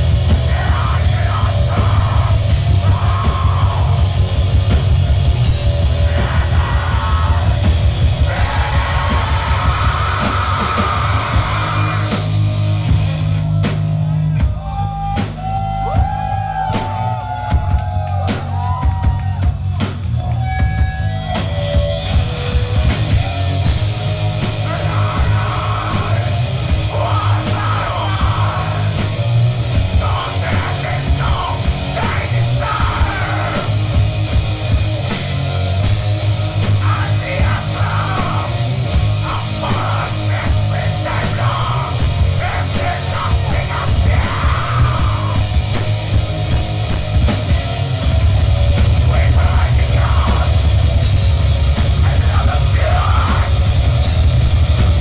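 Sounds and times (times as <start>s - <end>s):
electric guitars: 0.0s - 14.4s, 15.3s - 55.0s
fast drumming: 0.0s - 55.0s
live metal band playing: 0.0s - 55.0s
screamed vocals: 0.4s - 4.0s, 5.8s - 12.3s, 14.5s - 19.6s, 24.6s - 34.0s, 36.8s - 45.5s, 49.0s - 50.7s.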